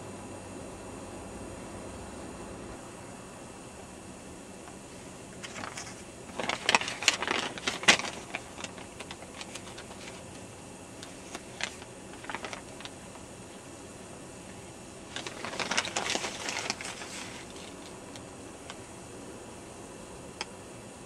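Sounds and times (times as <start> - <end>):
handling noise clicks and rustling: 5.4 - 13.3, 15.1 - 18.8.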